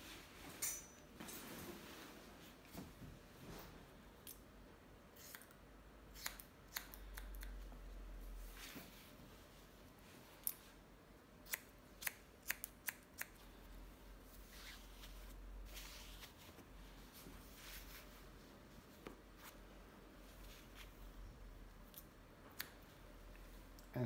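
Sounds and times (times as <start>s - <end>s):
scissors snipping hair: 5.2s - 7.6s, 11.4s - 13.4s, 21.8s - 22.8s.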